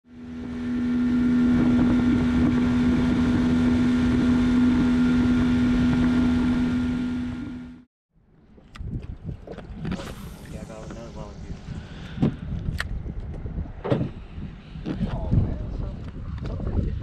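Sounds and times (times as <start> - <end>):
outboard motor droning: 0.0 - 12.6
wind and water rushing: 0.1 - 7.7, 8.4 - 17.0.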